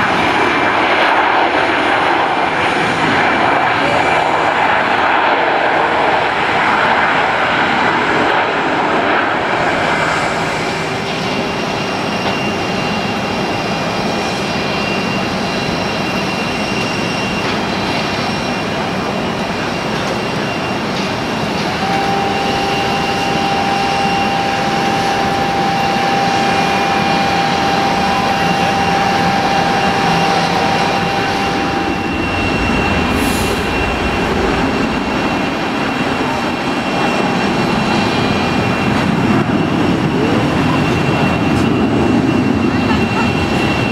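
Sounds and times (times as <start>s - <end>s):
jet engines rush and hum: 0.0s - 43.9s
thin high engine whine: 5.8s - 43.9s
clearer steady whine: 9.6s - 43.9s.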